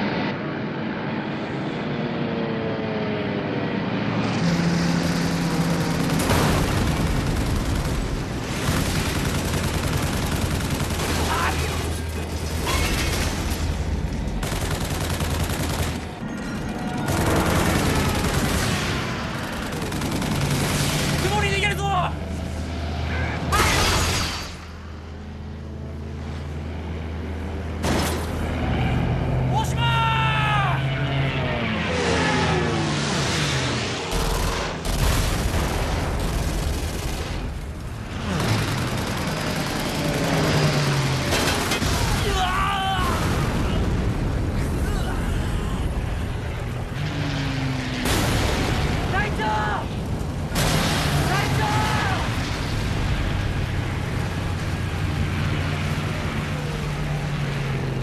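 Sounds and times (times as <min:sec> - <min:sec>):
rapid gunfire barrage: 0:04.5 - 0:22.8, 0:33.0 - 0:58.0
gunfire barrage: 0:05.2 - 0:22.1.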